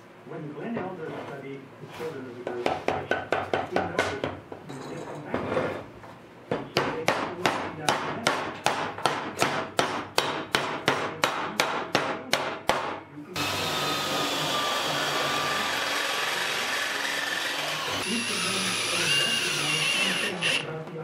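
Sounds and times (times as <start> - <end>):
hammer tapping on metal: 6.5 - 13.0.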